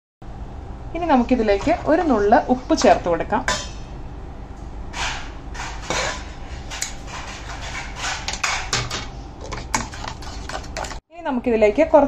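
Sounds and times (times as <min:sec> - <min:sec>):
spoon scraping against bowl: 0:05.6 - 0:11.0.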